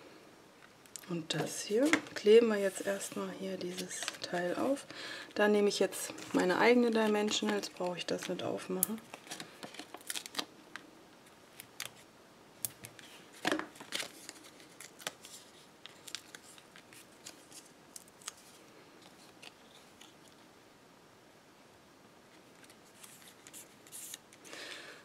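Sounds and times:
paper rustling: 22.4s - 24.4s.

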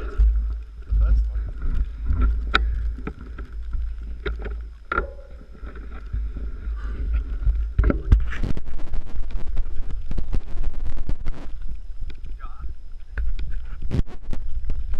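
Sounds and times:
bike rattling: 0.0s - 13.8s
bike tyres crunching on stones: 0.0s - 14.9s
wind on microphone: 5.3s - 14.9s.

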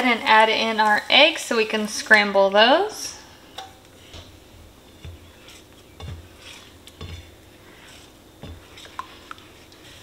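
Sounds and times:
spatula scraping a skillet: 3.3s - 10.0s.

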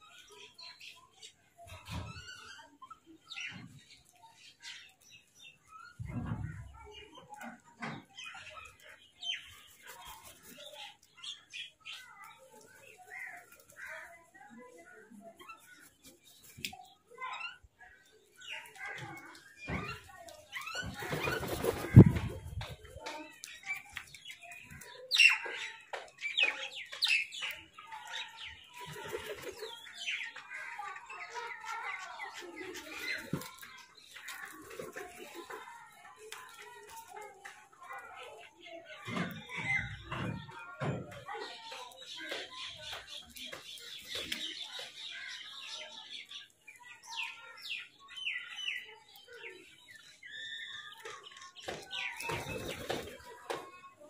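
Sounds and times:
wings fluttering: 18.8s - 24.8s, 28.8s - 29.8s, 51.1s - 53.3s.

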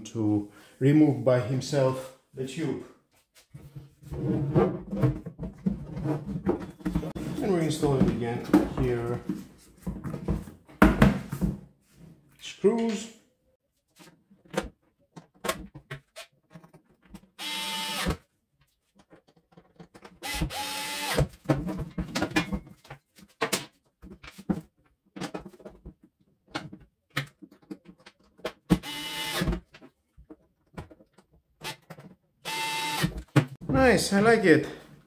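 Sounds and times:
cordless screwdriver whirring: 17.4s - 18.1s, 20.3s - 21.2s, 28.8s - 29.5s, 32.5s - 33.1s.

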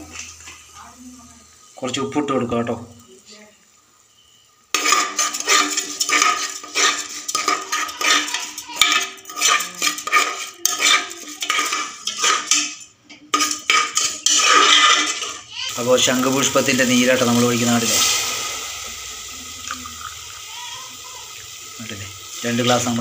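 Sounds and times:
metal spoon scraping rice in pot: 4.7s - 15.5s.

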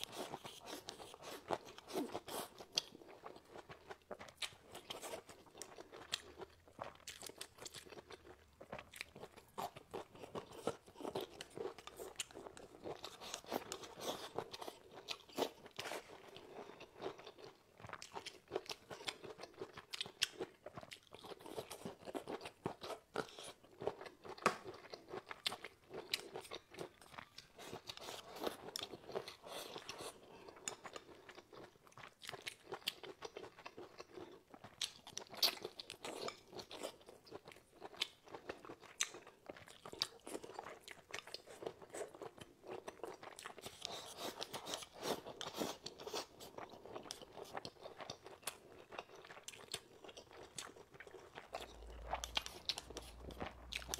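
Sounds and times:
person chewing crunchy food: 0.0s - 53.9s.

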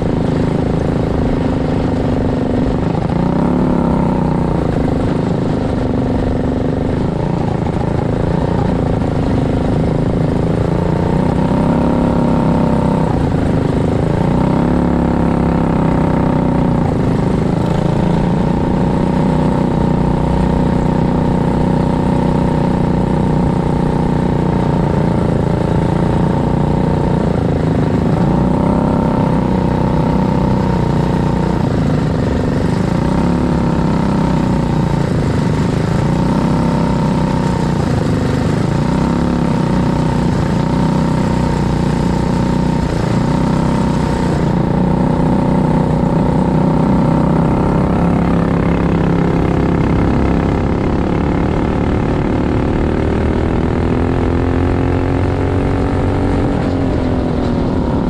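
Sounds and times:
racing kart engine: 0.0s - 58.0s.

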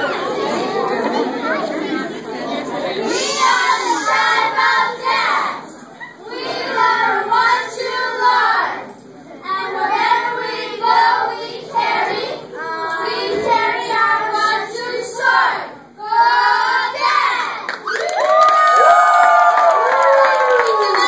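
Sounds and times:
children chanting a cheer: 2.9s - 18.0s.

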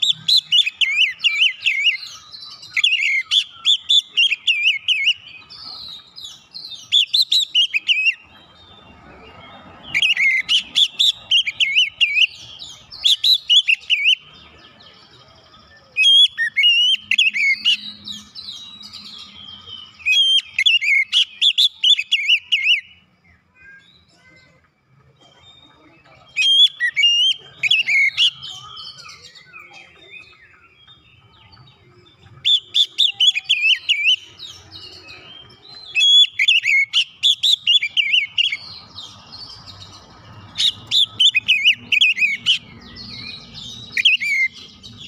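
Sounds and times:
bird singing whistled notes: 0.0s - 24.1s, 25.6s - 45.0s.

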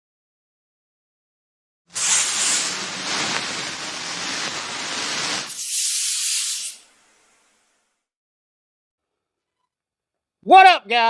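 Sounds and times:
steady rushing hiss: 1.9s - 7.8s.

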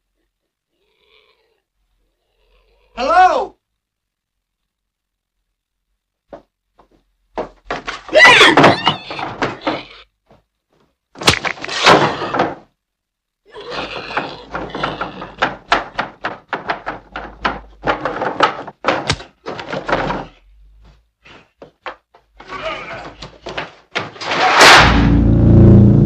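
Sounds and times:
knocks and scrapes on wooden floor: 6.3s - 12.7s, 13.8s - 24.8s.

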